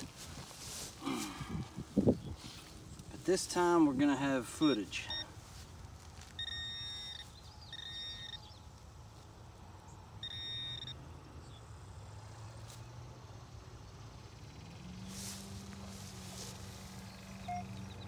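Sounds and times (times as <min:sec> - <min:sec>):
metal detector pinpointer beeps: 0:04.6 - 0:05.4, 0:06.3 - 0:08.5, 0:10.2 - 0:11.0, 0:17.4 - 0:17.8.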